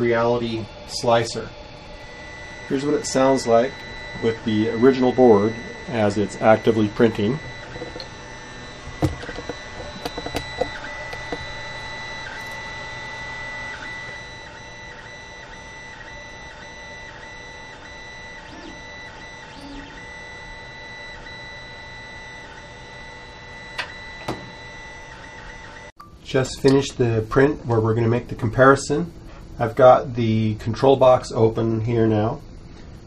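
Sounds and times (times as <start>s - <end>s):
stepper motors whining: 0.0s - 25.9s
printer clicks: 2.5s - 14.3s, 23.7s - 24.6s.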